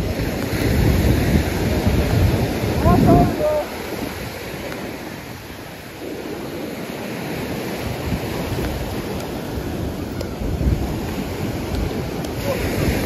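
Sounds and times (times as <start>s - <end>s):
small waves breaking on sand: 0.0s - 13.0s
wind buffeting microphone: 0.0s - 13.0s.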